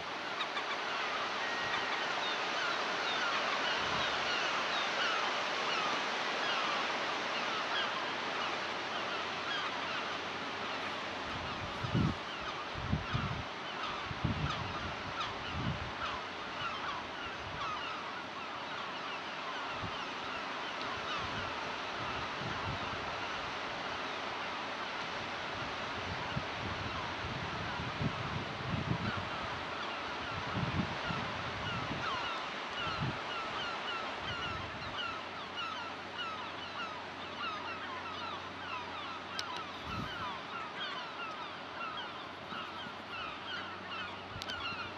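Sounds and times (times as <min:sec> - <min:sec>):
gulls calling: 0:00.0 - 0:23.8, 0:29.0 - 0:44.9
surf and wind hiss: 0:00.0 - 0:44.9
wind rumble on microphone: 0:11.3 - 0:16.1, 0:21.1 - 0:23.5, 0:25.2 - 0:32.1, 0:32.8 - 0:33.3, 0:39.4 - 0:40.4
wind buffeting microphone: 0:26.0 - 0:32.1, 0:39.8 - 0:40.4.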